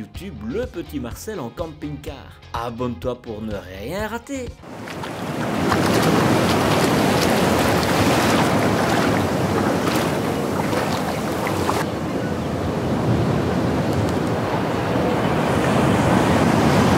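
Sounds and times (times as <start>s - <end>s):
sea waves on sandy beach: 4.6s - 16.9s
wind: 4.6s - 16.9s.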